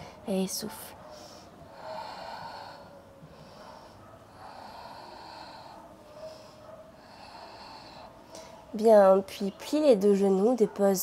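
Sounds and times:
woman breathing: 1.0 - 8.7.

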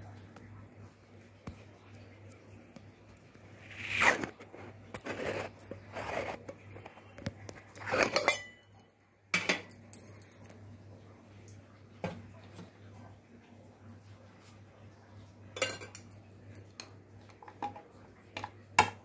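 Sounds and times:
faint steady hum: 0.0 - 19.0
plate scraping on counter: 3.6 - 6.5.

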